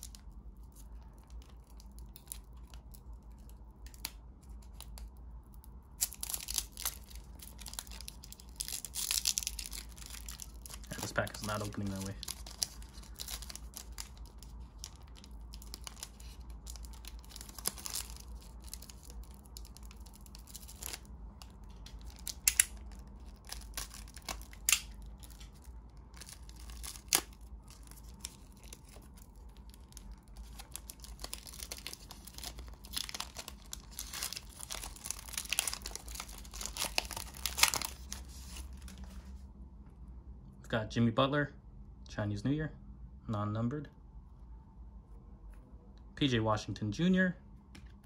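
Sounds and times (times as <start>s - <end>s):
wrapper tearing and crinkling: 0.0s - 5.2s, 5.8s - 39.2s
sharp wrapper snaps: 3.7s - 38.2s.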